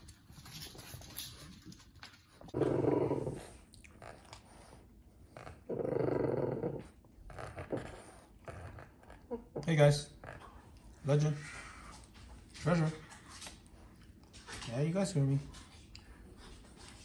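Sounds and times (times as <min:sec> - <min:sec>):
dogs growling: 0:02.4 - 0:13.1.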